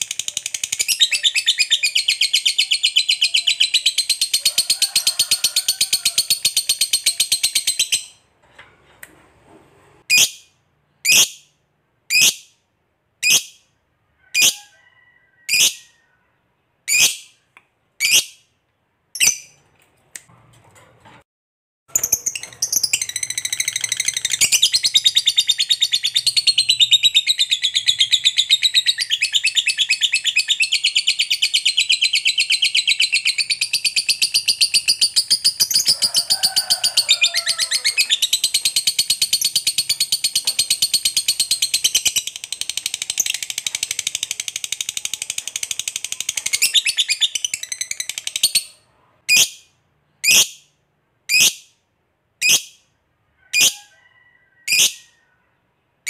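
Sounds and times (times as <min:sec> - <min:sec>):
bird chirps: 0:00.0 - 0:04.4, 0:21.9 - 0:36.0.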